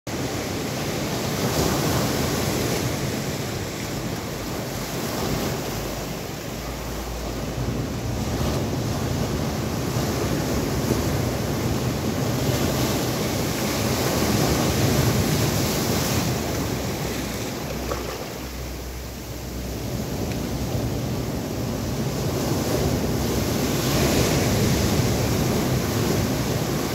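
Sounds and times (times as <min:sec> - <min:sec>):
waves breaking over boulders: 0:00.1 - 0:26.9.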